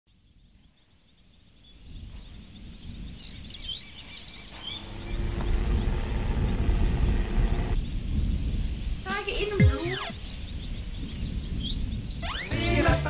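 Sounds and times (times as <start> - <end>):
birds chirping: 1.8 - 12.7
low outdoor rumble: 4.5 - 10.2.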